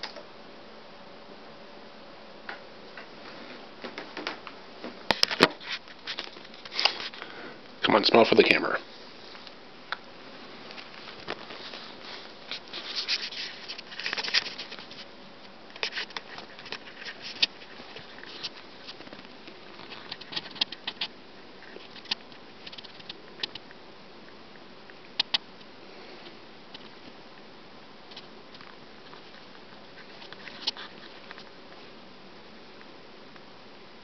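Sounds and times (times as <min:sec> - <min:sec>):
squirrel claws scratching fabric: 0:10.7 - 0:15.1, 0:15.8 - 0:23.6.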